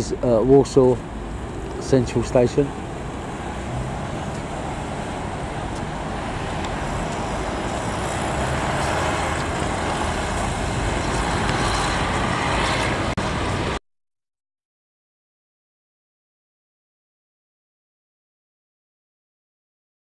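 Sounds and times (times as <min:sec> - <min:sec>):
buses and cars passing: 0:00.0 - 0:13.8.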